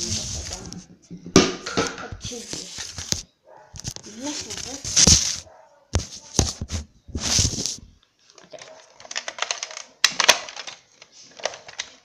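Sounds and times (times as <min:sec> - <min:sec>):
hard objects being handled: 0:00.0 - 0:12.0
short rustle: 0:02.2 - 0:07.9.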